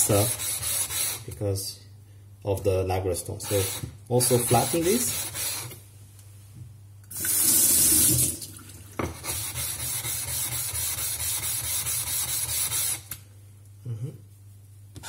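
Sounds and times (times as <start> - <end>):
water running: 7.1 - 9.1.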